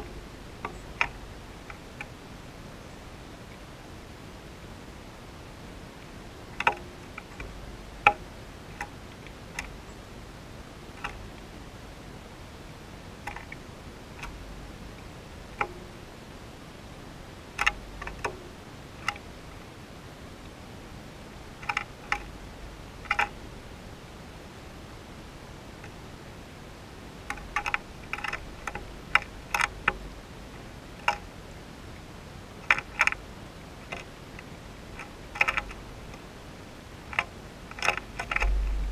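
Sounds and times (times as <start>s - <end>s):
faint steady hiss: 0.0s - 38.9s
bird pecking on bird bath: 6.5s - 9.8s, 11.0s - 11.4s, 15.5s - 16.0s, 17.6s - 18.4s, 21.5s - 22.4s, 23.0s - 23.4s, 27.2s - 30.1s, 32.6s - 33.2s, 33.8s - 36.2s, 37.0s - 38.9s.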